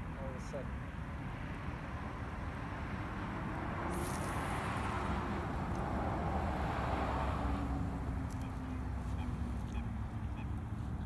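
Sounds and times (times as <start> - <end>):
road traffic: 0.0 - 11.0
wind: 0.0 - 11.0
fishing rod casting swish: 3.8 - 6.4.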